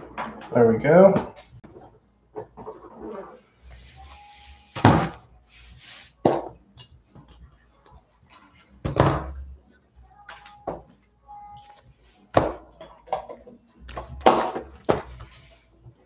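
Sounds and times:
wrapped boxes rustling and sliding: 0:02.8 - 0:06.2.

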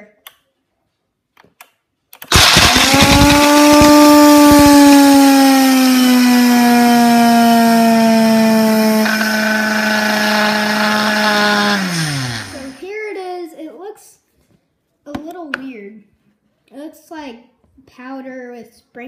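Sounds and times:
blender motor whine: 0:02.3 - 0:12.8
hard candies clattering in blender: 0:02.3 - 0:12.8.

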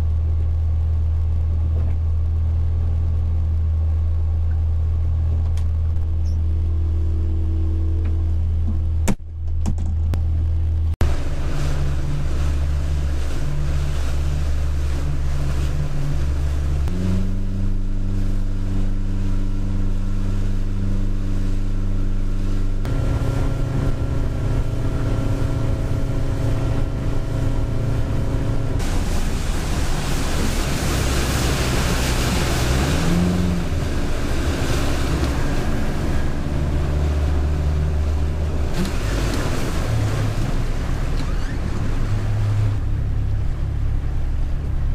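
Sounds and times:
outboard motor running: 0:00.0 - 0:44.9
wind and water rushing: 0:11.0 - 0:44.9.

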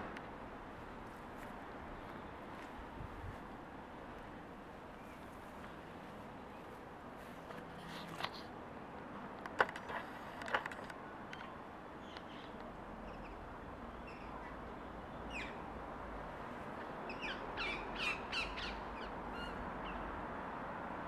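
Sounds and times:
birds calling harshly: 0:17.0 - 0:20.1.

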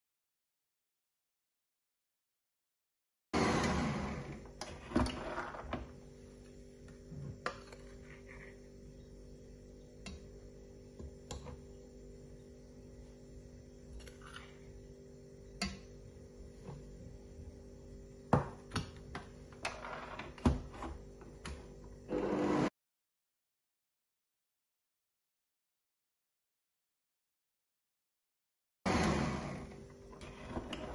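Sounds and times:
metal spoon scraping bowl: 0:14.0 - 0:14.7.

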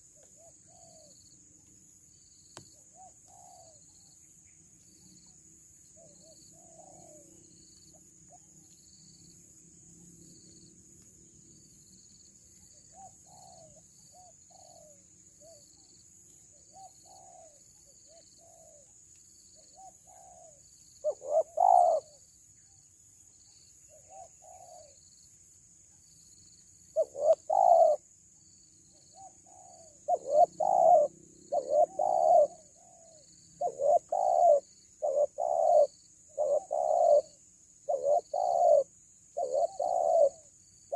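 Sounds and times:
doves cooing: 0:16.8 - 0:18.8, 0:19.8 - 0:22.1, 0:27.0 - 0:28.0, 0:29.2 - 0:40.5.

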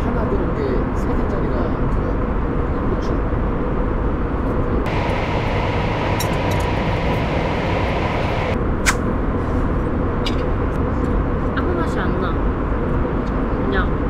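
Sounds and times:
airliner cabin rumble: 0:00.0 - 0:14.0
faint steady hum: 0:03.9 - 0:09.2.

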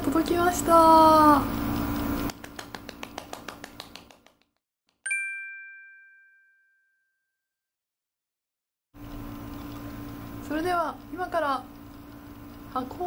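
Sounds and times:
bright bell-like chime: 0:05.1 - 0:07.4
rapid light ticks: 0:09.2 - 0:13.0.

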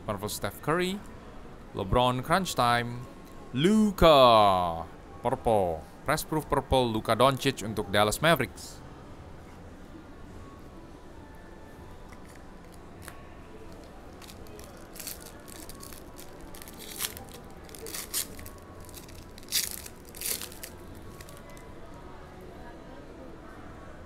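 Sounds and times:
card wrappers ripping and rustling: 0:13.7 - 0:21.6.

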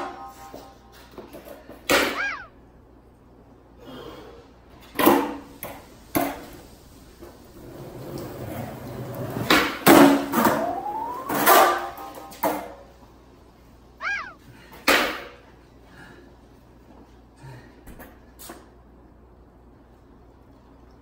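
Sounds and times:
skateboard wheels rolling on concrete: 0:04.8 - 0:12.8.

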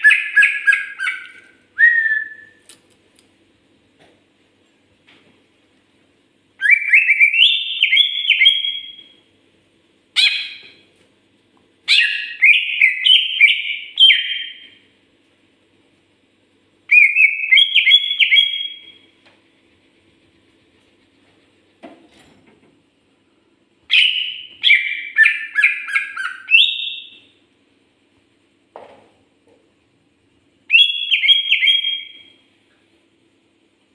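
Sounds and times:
bird singing whistled notes: 0:00.0 - 0:02.6, 0:06.6 - 0:09.2, 0:11.9 - 0:14.8, 0:16.9 - 0:19.0, 0:23.9 - 0:27.3, 0:30.7 - 0:32.4.

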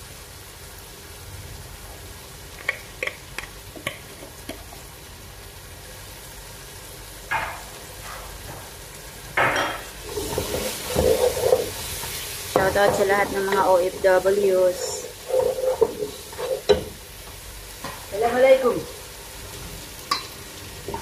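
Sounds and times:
sauce sizzling: 0:00.0 - 0:21.0
wooden spatula scraping pot: 0:10.0 - 0:17.0.

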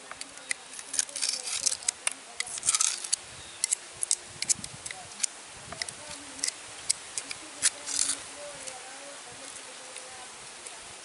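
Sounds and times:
knife clicking on snail shells: 0:00.1 - 0:08.2.

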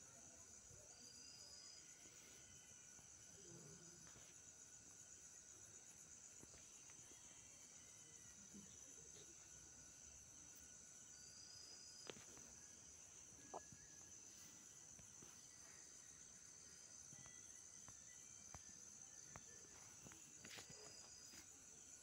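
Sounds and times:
faint high-pitched chirring: 0:00.0 - 0:22.0.

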